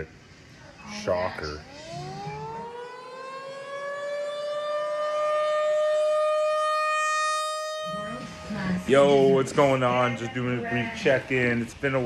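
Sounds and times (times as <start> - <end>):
civil defense siren wailing: 0.9 - 10.2.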